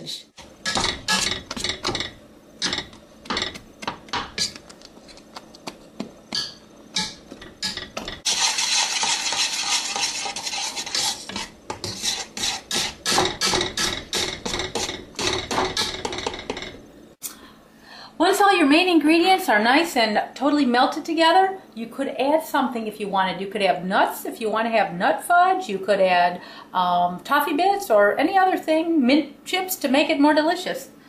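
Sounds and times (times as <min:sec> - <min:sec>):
potato masher knocking on pan: 0:00.6 - 0:04.6, 0:05.6 - 0:16.8.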